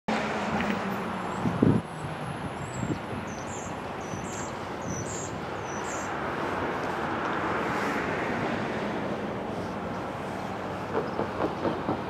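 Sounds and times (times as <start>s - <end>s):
distant train rumble: 0.4s - 12.0s
wind on microphone: 0.5s - 9.5s
small bird chirping: 2.7s - 6.1s.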